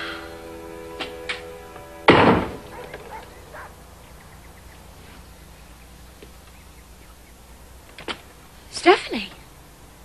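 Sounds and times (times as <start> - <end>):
faint footsteps: 0.9 - 6.7.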